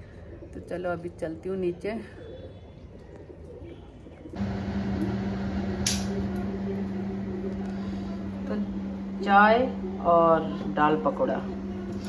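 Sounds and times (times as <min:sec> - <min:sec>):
electrical hum with hiss: 0:04.4 - 0:12.0.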